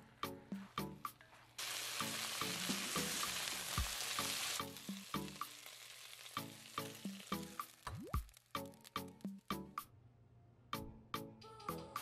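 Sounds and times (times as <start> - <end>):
background music: 0.0 - 12.0
stir-fry sizzling in a wok: 1.6 - 7.9.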